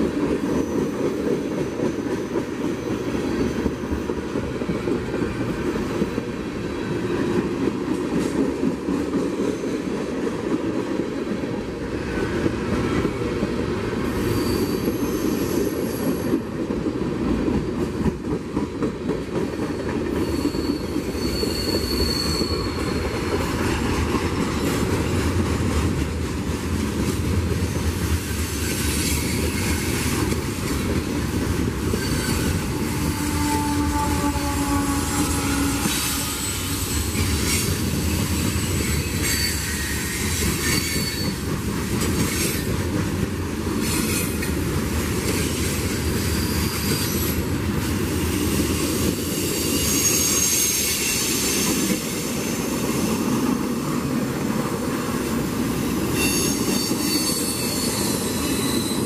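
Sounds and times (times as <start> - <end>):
train wheels rumbling and clacking: 0.0 - 59.0
high-pitched wheel squeals: 14.1 - 16.3, 20.2 - 23.2, 31.9 - 37.7, 38.5 - 41.4, 49.6 - 52.6, 56.2 - 59.0.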